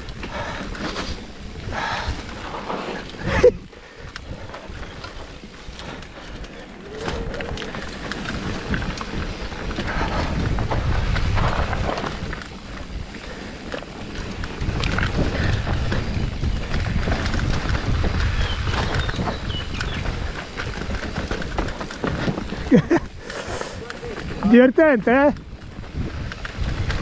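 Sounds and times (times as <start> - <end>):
wind buffeting microphone: 0.0 - 27.0
bike knocks and rattles: 4.1 - 23.2
tyre rumble on dirt: 4.2 - 27.0.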